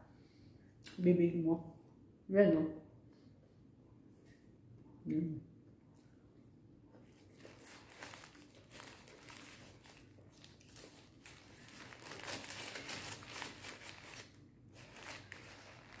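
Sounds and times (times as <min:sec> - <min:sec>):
paper wrapper crinkling: 0:07.0 - 0:16.0.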